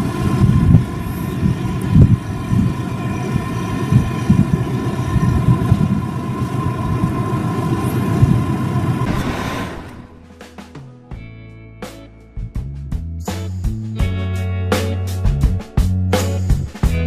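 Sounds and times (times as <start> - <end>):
boat engine drone: 0.0 - 10.5
constant high whine: 0.0 - 10.8
uneven low rumbling: 0.0 - 10.9.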